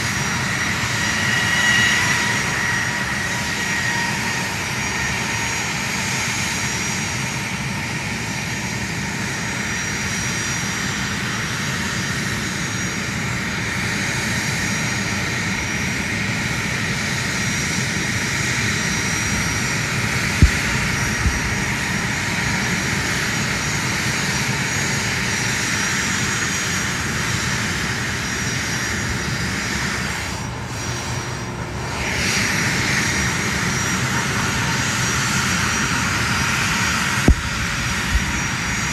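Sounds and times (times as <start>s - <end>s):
jet engines running: 0.0s - 38.9s.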